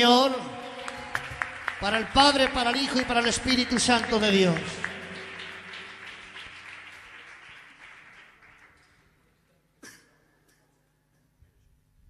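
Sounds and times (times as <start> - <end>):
crowd applause: 0.0 - 9.1.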